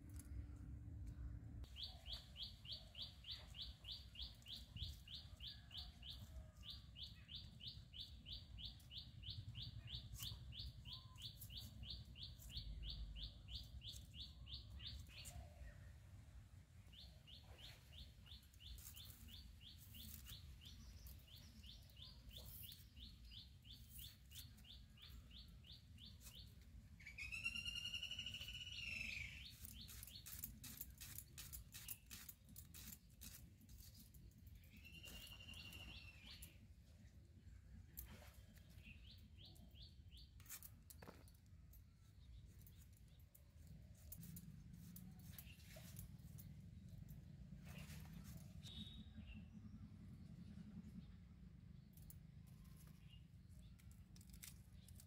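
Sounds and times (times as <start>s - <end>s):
rapid high bird chirps: 17.0s - 33.9s, 47.8s - 49.5s.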